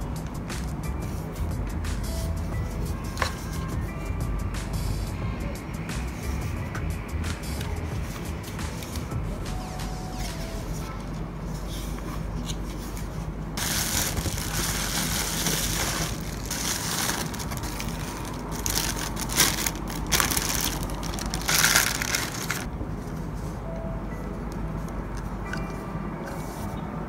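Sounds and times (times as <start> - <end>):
plastic packaging crinkling: 13.6 - 22.7.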